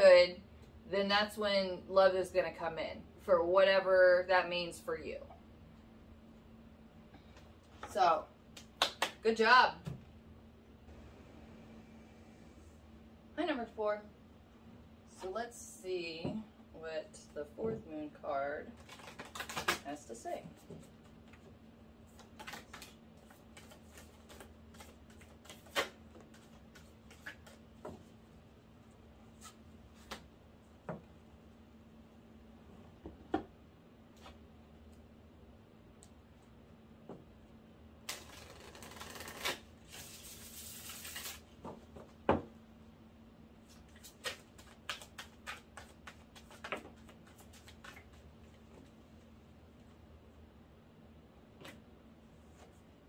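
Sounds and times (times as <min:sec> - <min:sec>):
cards tapping and clicking: 0:44.0 - 0:48.2.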